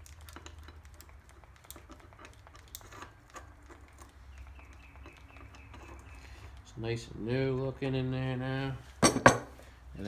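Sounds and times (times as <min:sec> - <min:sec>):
grease gun clicks and squishes: 0:00.0 - 0:06.7.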